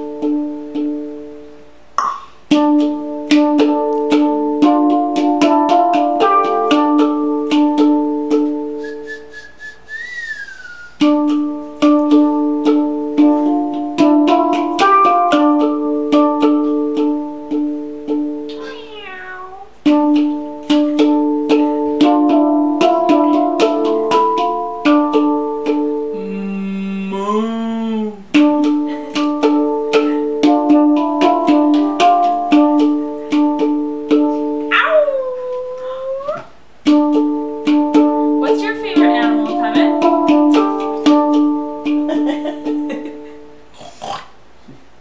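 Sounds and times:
handpan notes ringing: 0.0 - 9.7, 11.0 - 43.7
gliding wavering call: 8.6 - 11.2, 26.1 - 28.4.

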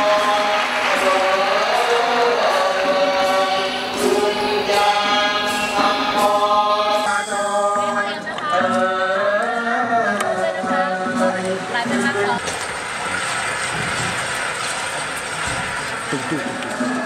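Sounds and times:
vocal chorus singing long notes: 0.0 - 12.5.

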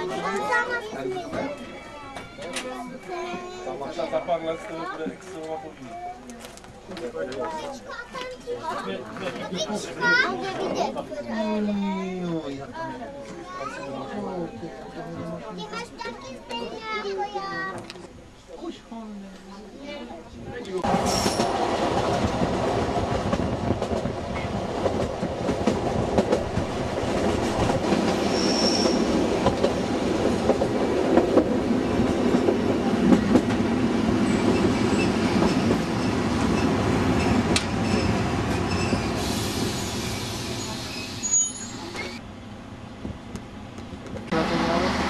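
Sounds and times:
train wheels clattering: 20.9 - 40.8
high wheel squeal: 28.2 - 29.1, 36.6 - 42.2.

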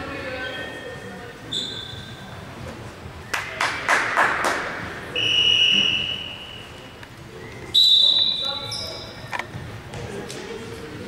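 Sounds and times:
referee's whistle blasts: 1.5 - 2.2, 5.1 - 6.8, 7.7 - 9.2.

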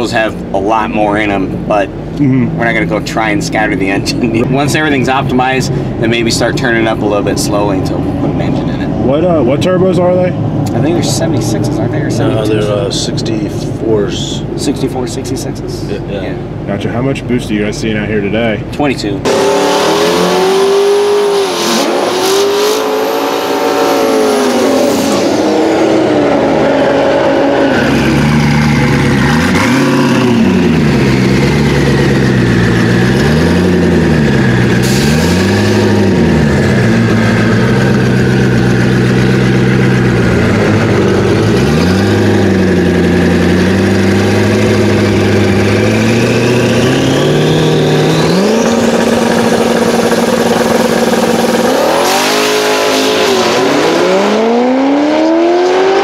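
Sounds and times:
car engine idling: 0.0 - 19.2, 27.8 - 52.7
car engine revving: 19.2 - 56.0.

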